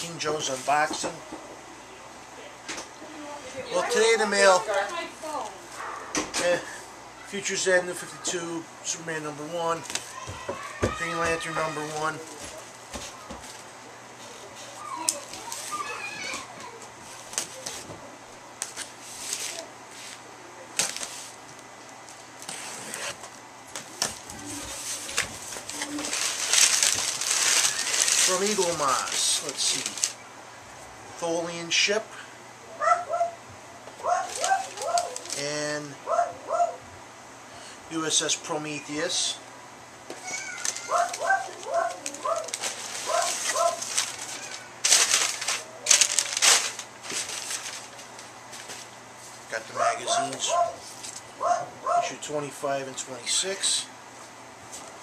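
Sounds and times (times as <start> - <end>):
wrapping crinkling and rustling: 9.7 - 17.9, 18.6 - 30.2, 34.0 - 35.5, 40.2 - 51.3.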